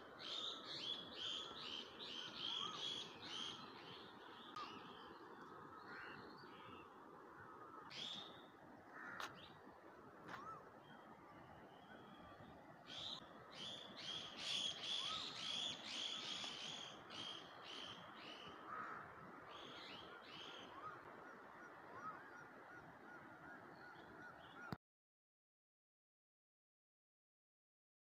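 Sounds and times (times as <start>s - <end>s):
faint bird chirps: 10.3s - 18.4s.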